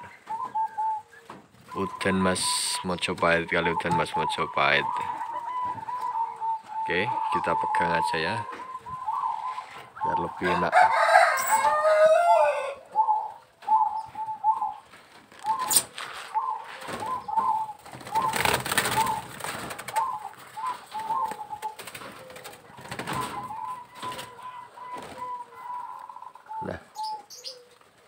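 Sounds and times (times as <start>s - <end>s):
doves cooing: 0.0s - 28.0s
rustling: 14.8s - 24.4s
loud falling bird call: 15.4s - 27.7s.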